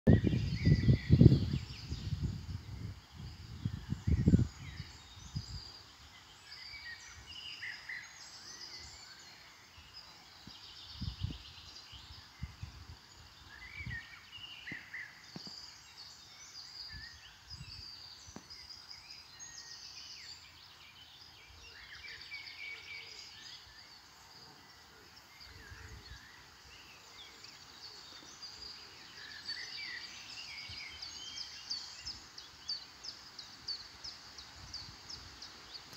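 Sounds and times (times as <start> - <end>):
wind rumble on microphone: 0.1 - 7.4, 9.9 - 15.8, 16.7 - 18.7, 25.3 - 26.4, 34.4 - 35.9
songbirds chirping and singing: 0.1 - 35.9.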